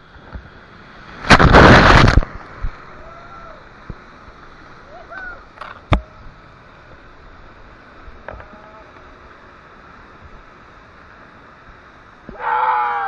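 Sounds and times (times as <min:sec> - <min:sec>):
whitewater rushing: 0:00.0 - 0:05.6.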